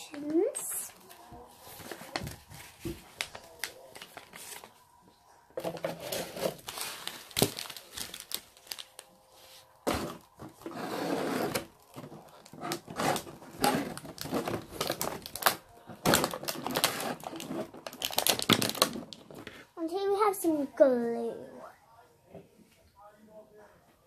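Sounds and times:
paper and plastic rustling: 0:00.1 - 0:04.8, 0:05.6 - 0:19.6.

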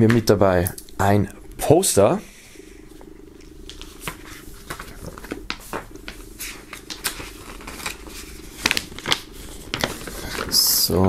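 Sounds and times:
paper crinkling: 0:03.6 - 0:11.0.

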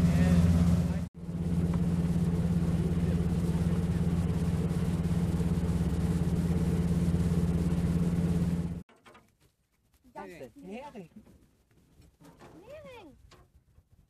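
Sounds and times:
boat engine humming: 0:00.0 - 0:08.8.

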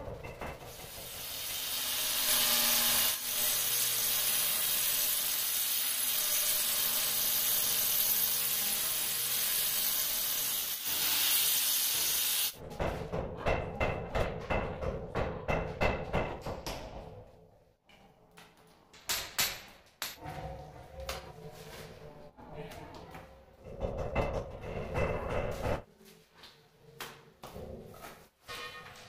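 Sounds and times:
angle grinder cutting stone: 0:01.2 - 0:12.6.

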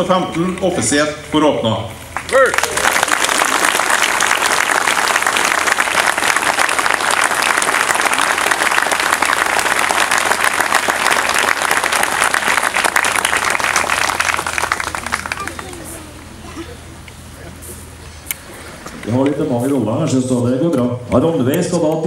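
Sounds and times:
crowd applauding: 0:02.2 - 0:16.2.

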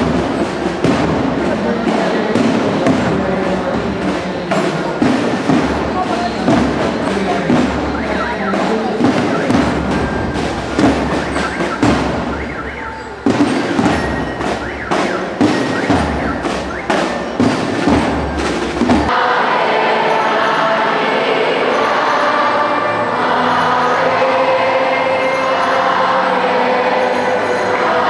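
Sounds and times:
marching drums: 0:00.0 - 0:22.0
crowd singing: 0:00.0 - 0:28.0
xylophone: 0:06.1 - 0:19.2, 0:19.8 - 0:28.0.

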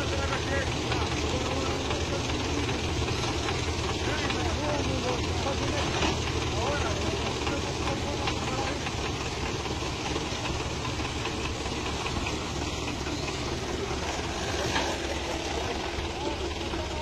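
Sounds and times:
tractor diesel engine idling: 0:00.0 - 0:17.0.

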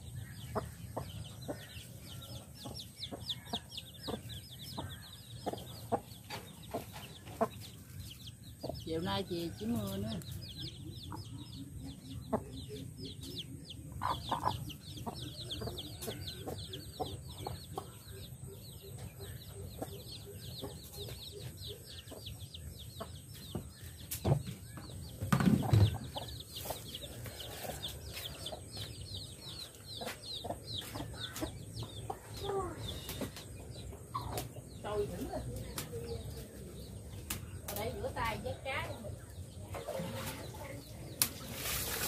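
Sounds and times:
chicks peeping: 0:00.0 - 0:42.0
hen clucking: 0:00.4 - 0:08.0, 0:13.9 - 0:23.3.

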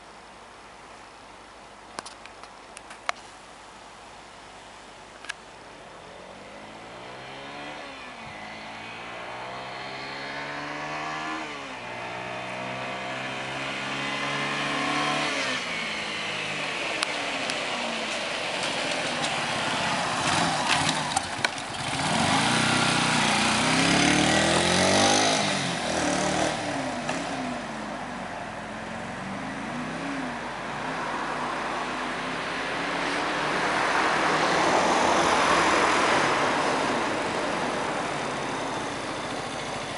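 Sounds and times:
motorcycle engine accelerating: 0:06.4 - 0:27.9.

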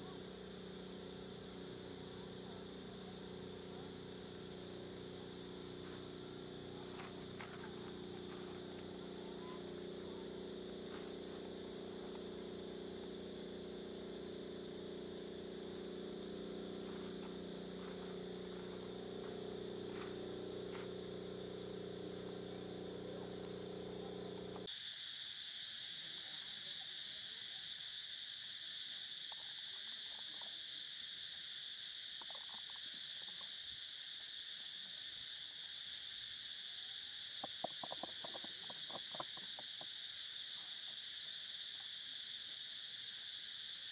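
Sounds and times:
steady low hum: 0:00.0 - 0:24.7
high-pitched insect drone: 0:00.0 - 0:43.9.

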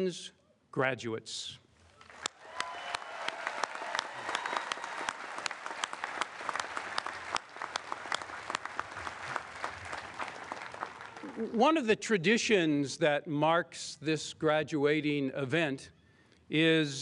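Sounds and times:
crowd applauding: 0:02.0 - 0:11.6.

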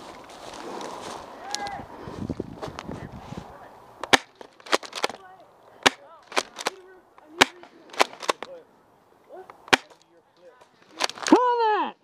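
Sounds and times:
gunfire cracks: 0:04.0 - 0:05.1, 0:07.4 - 0:08.5, 0:09.7 - 0:10.0.

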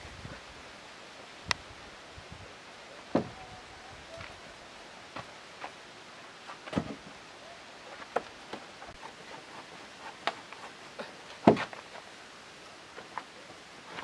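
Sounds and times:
wooden timbers knocking: 0:03.1 - 0:03.4, 0:11.4 - 0:11.8.

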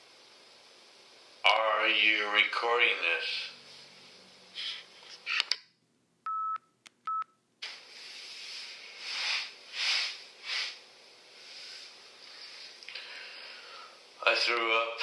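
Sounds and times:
tape hiss: 0:00.0 - 0:15.0
short steady beeps: 0:06.3 - 0:07.4.

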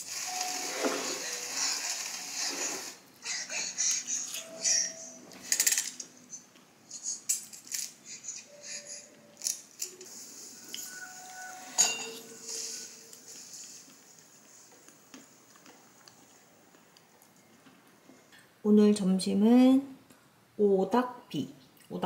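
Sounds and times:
metal spoon scraping ceramic bowl: 0:10.7 - 0:13.1.

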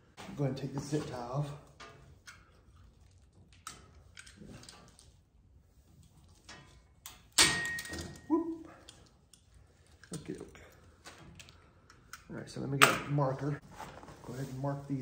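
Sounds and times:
metal clank with ring: 0:07.4 - 0:08.2.

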